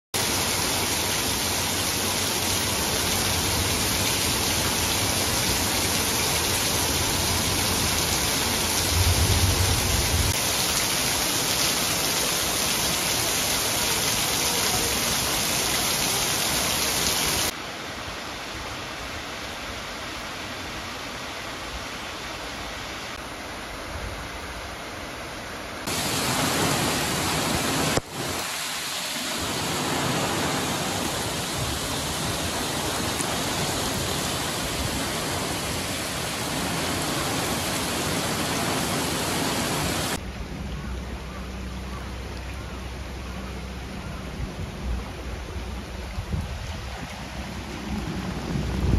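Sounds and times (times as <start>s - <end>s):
floodwater rushing over stone steps: 0.2s - 18.1s, 25.8s - 41.2s, 44.7s - 48.9s
heavy rain pouring: 0.2s - 21.4s, 22.0s - 48.9s.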